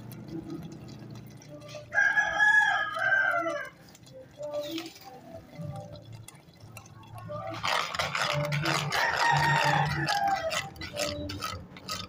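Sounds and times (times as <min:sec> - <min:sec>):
rooster crowing: 0:01.9 - 0:03.8, 0:08.8 - 0:11.2.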